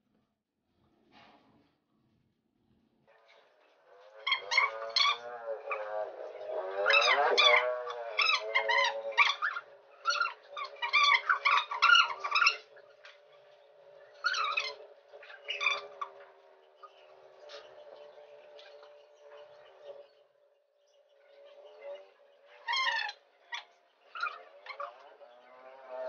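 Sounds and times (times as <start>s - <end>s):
high wavering animal cries: 4.1s - 6.1s, 6.7s - 13.0s, 14.1s - 16.2s, 22.5s - 25.1s.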